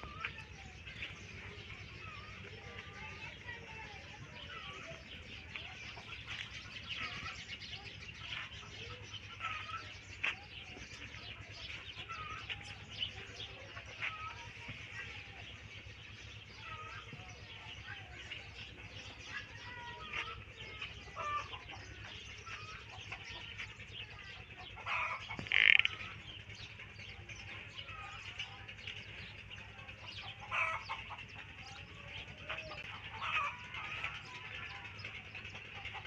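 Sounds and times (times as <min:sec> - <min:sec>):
chickens clucking: 0:00.0 - 0:36.0
small birds chirping: 0:00.0 - 0:36.0
loud bird call: 0:24.6 - 0:26.4.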